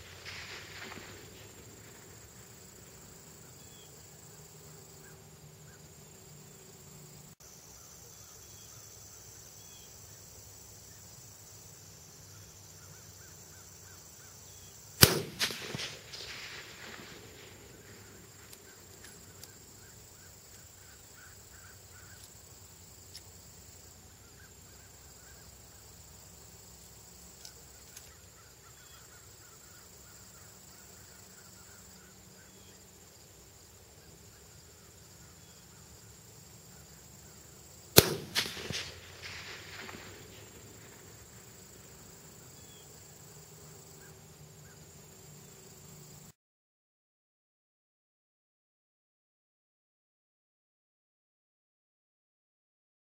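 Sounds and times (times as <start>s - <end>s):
rifle shot echoing: 15.0s - 18.2s, 38.0s - 41.0s.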